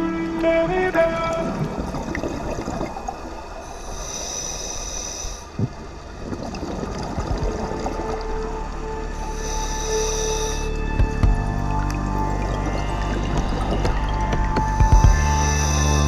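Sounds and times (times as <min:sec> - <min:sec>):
muffled underwater noise: 0:00.0 - 0:16.0
diver bubbles gurgling: 0:00.4 - 0:16.0
faint background music: 0:07.0 - 0:16.0.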